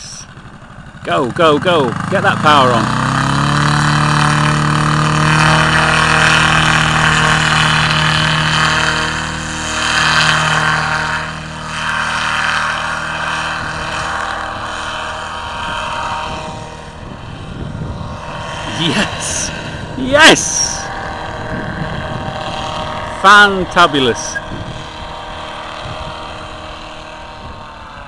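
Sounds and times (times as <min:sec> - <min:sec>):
paramotor engine and propeller: 0:00.0 - 0:28.0.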